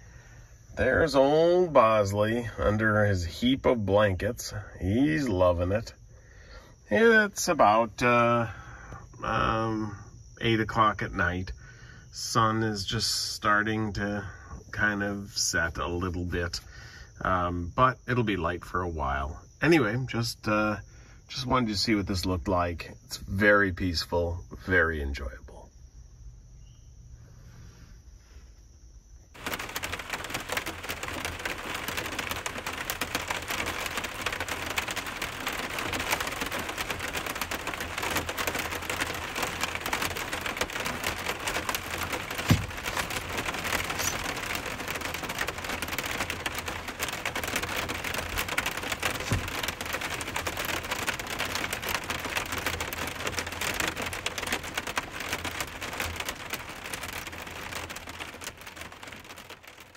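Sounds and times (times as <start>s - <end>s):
rain on a vehicle roof: 0.0s - 22.8s, 29.3s - 59.9s
heavier knocks: 39.9s - 43.8s.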